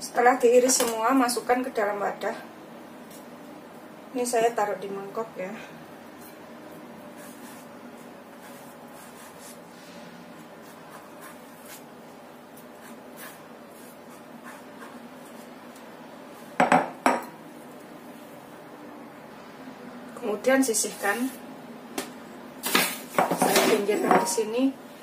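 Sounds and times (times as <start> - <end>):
ceramic bowl knocking on counter: 16.6 - 17.2.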